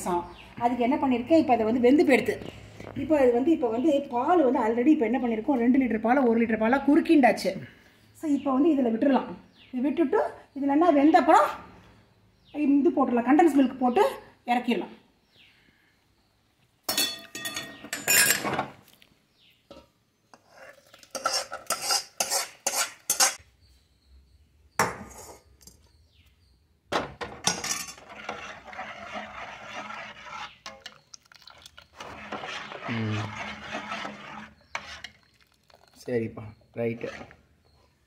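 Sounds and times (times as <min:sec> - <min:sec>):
ladle scraping steel pot: 0:16.9 - 0:18.5, 0:20.3 - 0:23.4, 0:27.3 - 0:36.1, 0:36.8 - 0:37.5
spoon clinking on steel vessels: 0:16.9 - 0:18.5, 0:20.9 - 0:23.4, 0:27.4 - 0:28.1.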